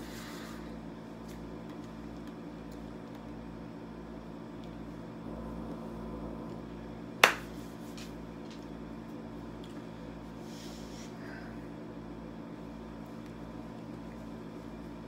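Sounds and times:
low room tone hum: 0.0 - 15.0
hand clap: 7.2 - 7.6.

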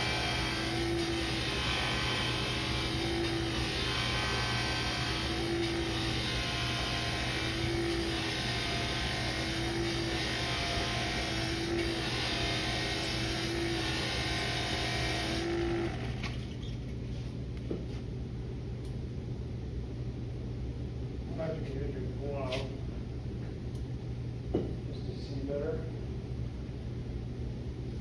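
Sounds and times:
buffing wheel hissing on metal: 0.0 - 16.2
motor humming: 0.0 - 16.8.

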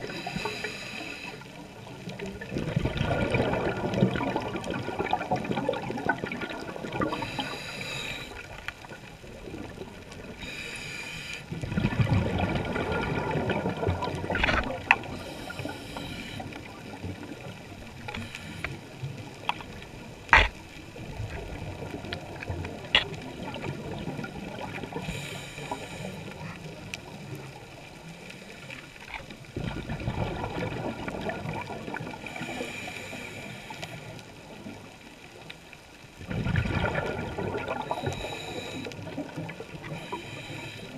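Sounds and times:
regulator breathing hiss: 0.0 - 1.6, 7.1 - 8.6, 10.4 - 11.5, 15.2 - 16.6, 18.1 - 19.0, 24.9 - 26.5, 32.2 - 34.2, 38.0 - 39.0, 39.9 - 40.9
exhaled bubbles rushing: 1.8 - 7.7, 11.5 - 15.8, 21.0 - 25.2, 29.5 - 32.5, 36.2 - 40.2.

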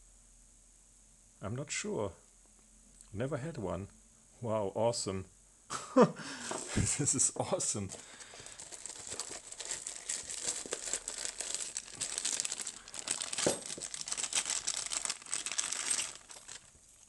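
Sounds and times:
plastic bag crinkling: 7.8 - 17.0.

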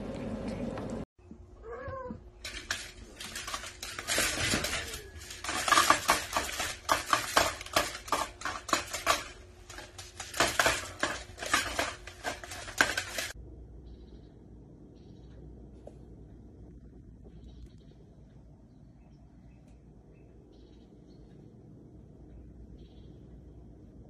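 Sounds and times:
cat clattering hard plastic: 2.4 - 13.4.

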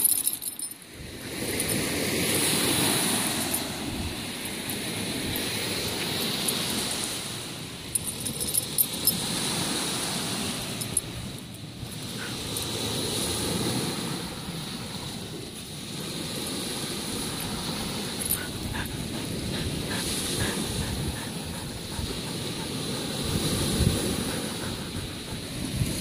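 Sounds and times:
wind rumbling on microphone: 8.4 - 26.0.

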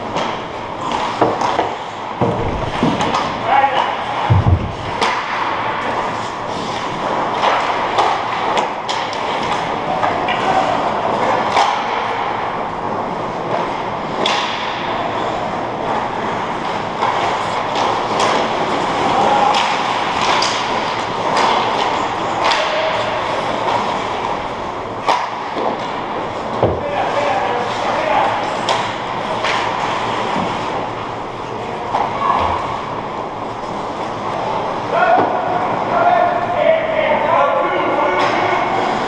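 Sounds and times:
sticks and puck clacking: 0.0 - 12.5, 13.1 - 31.0, 37.8 - 39.0
heavy thump: 4.3 - 5.2.

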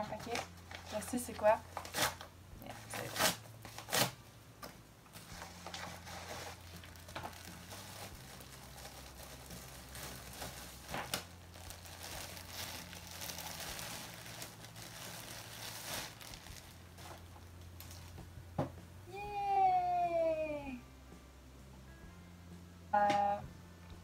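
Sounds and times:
plastic bag crinkling: 5.1 - 18.2.

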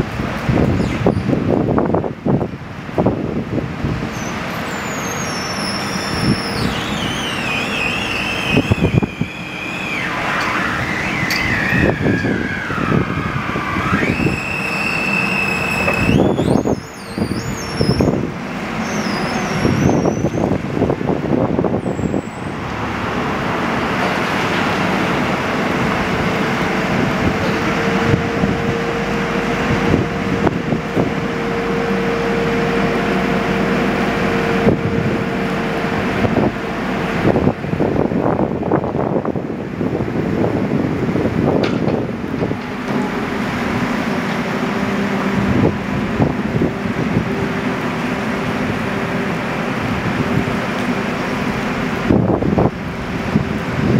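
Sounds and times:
telehandler engine running: 3.7 - 53.9
hydraulic whine sliding down: 4.0 - 39.6
clunks and knocks: 41.6 - 43.1.

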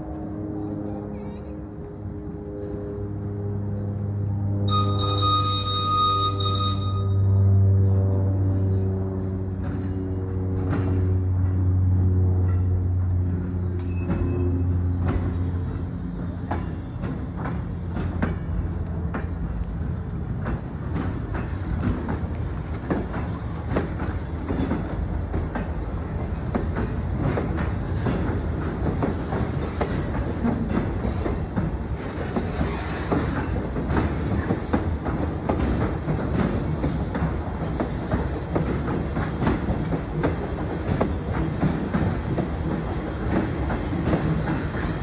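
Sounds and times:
low rumble of railroad cars: 0.0 - 45.0
train wheels clacking on rail joints: 9.1 - 45.0.

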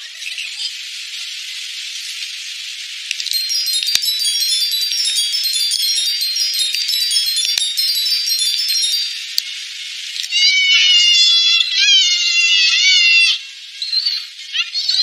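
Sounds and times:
twinkling wind chimes: 2.8 - 14.5
faint clicks: 3.1 - 4.1.

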